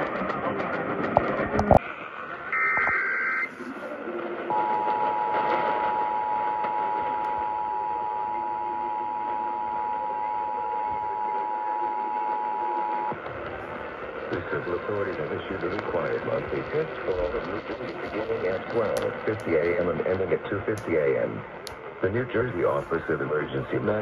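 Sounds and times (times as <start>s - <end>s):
radio static with clicks: 0.0s - 24.0s
data tones burst: 2.5s - 3.6s, 4.5s - 20.0s
two-tone attention signal: 4.5s - 13.1s.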